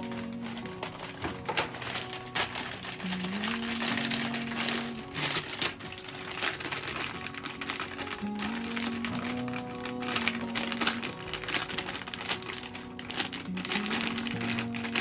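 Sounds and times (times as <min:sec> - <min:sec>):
background music: 0:00.0 - 0:15.0
plastic bag crinkling: 0:00.0 - 0:15.0.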